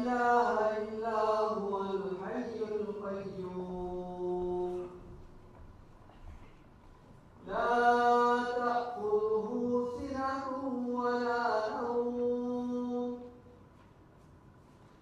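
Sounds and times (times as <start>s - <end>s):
man chanting unaccompanied: 0.0s - 5.2s, 7.4s - 13.4s.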